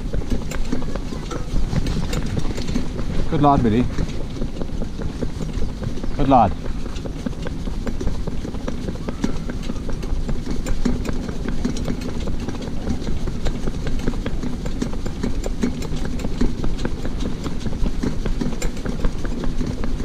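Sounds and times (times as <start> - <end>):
cart wheels rumbling: 0.0 - 20.0
hooves clip-clopping on tarmac: 0.0 - 20.0.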